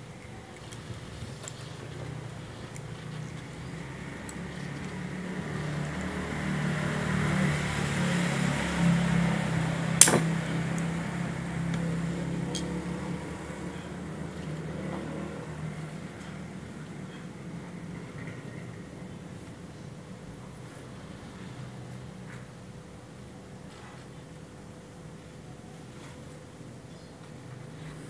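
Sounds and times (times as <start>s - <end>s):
low motor-like hum: 0.0s - 28.0s
sharp click of metal part: 10.0s - 10.3s.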